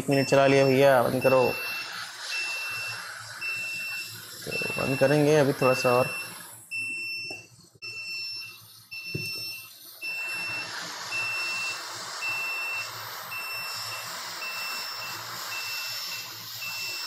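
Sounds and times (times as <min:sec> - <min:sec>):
short high beeps: 0:00.0 - 0:17.0
hiss of blowing air: 0:09.9 - 0:17.0.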